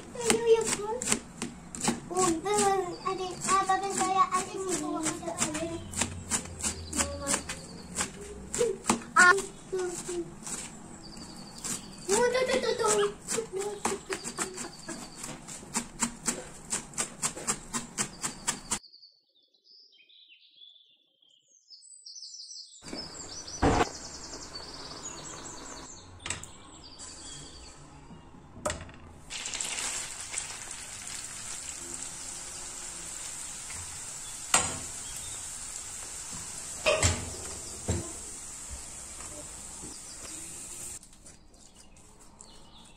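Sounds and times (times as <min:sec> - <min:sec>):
onions sizzling in butter: 0:29.3 - 0:41.0
water boiling: 0:29.3 - 0:41.0
metal spoon clanking on pan: 0:36.8 - 0:37.4.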